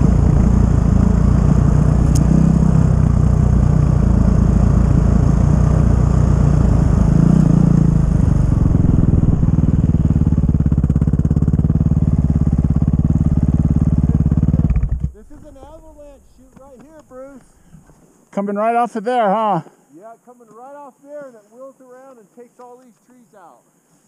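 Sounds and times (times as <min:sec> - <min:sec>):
snowbike engine running: 0:00.0 - 0:16.0.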